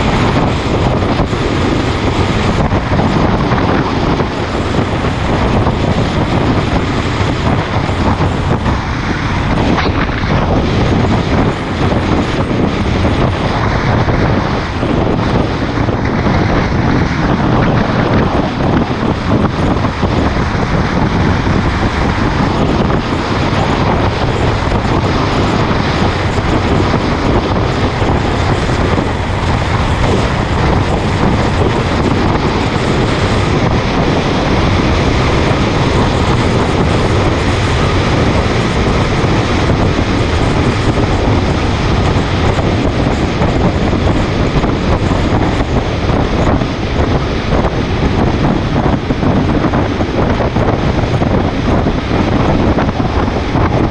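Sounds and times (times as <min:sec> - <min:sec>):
motorcycle engine: 0:00.0 - 0:53.9
wind rushing over microphone: 0:00.0 - 0:53.9.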